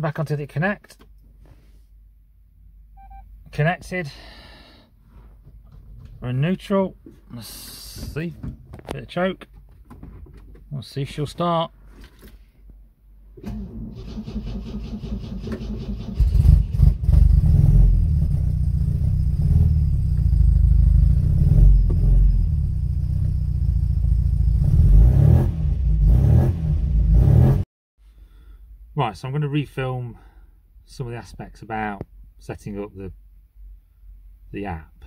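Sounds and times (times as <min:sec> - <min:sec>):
starter motor cranking engine: 0:13.4 - 0:17.1.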